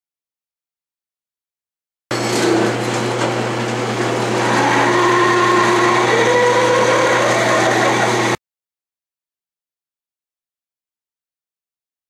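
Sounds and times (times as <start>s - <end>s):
lathe motor hum: 2.1s - 8.4s
drill whine: 4.0s - 8.4s.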